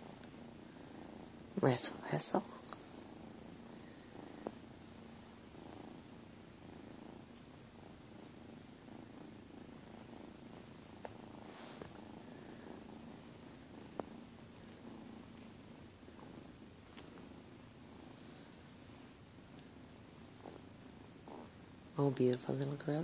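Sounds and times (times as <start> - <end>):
kittens purring: 0.0 - 23.0.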